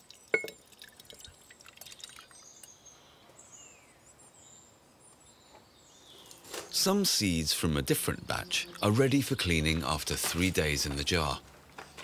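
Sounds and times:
faint wet pouring: 0.0 - 2.7
glass clinking: 0.2 - 0.6.

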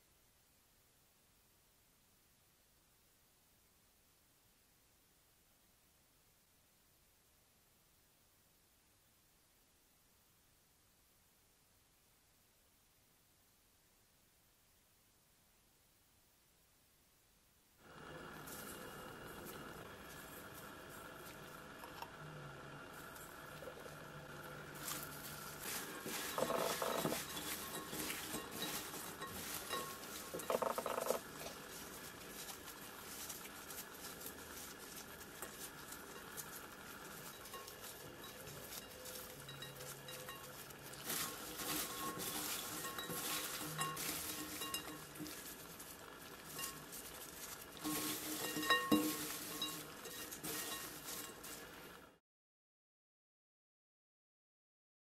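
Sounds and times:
gloved hands rustling snack strips: 23.0 - 52.0.

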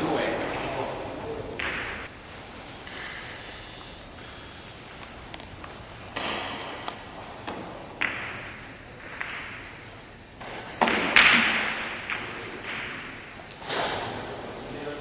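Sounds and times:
billiard balls clacking: 0.0 - 2.1, 5.3 - 9.8.

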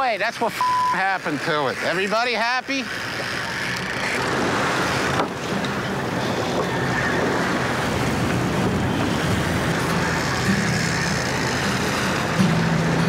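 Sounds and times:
low hum from boat: 0.6 - 13.0
sea washing against boat hull: 3.1 - 13.0
wind buffeting microphone: 4.2 - 13.0.

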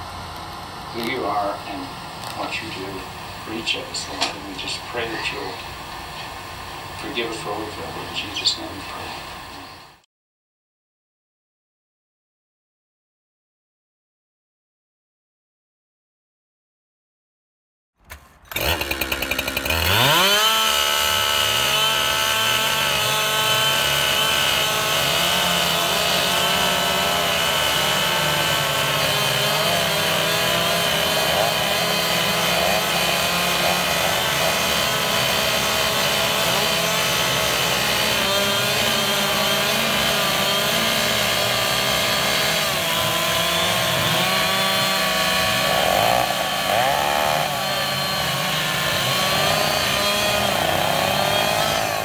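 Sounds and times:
chainsaws running at high revs: 0.0 - 10.0, 18.4 - 52.0.

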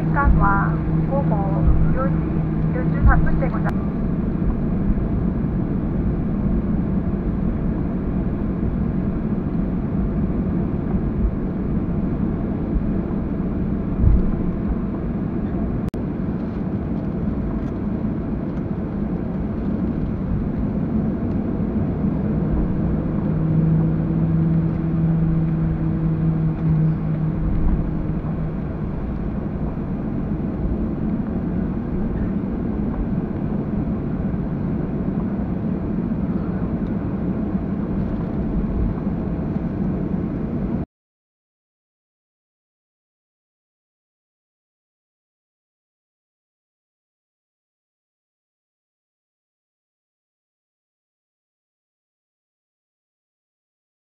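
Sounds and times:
airliner cabin rumble: 0.0 - 40.8
low hum: 0.0 - 40.9.

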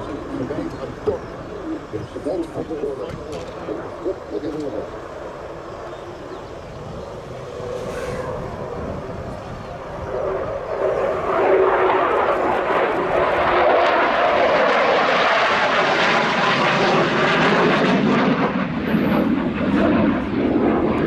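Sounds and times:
crackling fighter jet noise: 0.0 - 21.0.

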